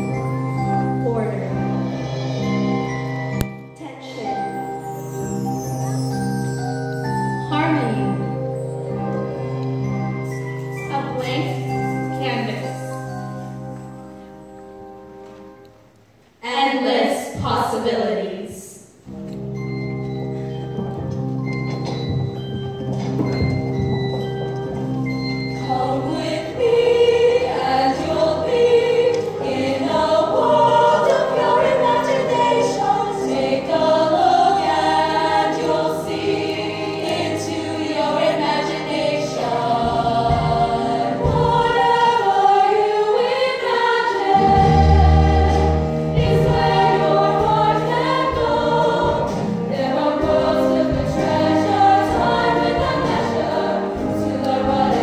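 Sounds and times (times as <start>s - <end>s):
women's choir singing: 25.5s - 55.0s.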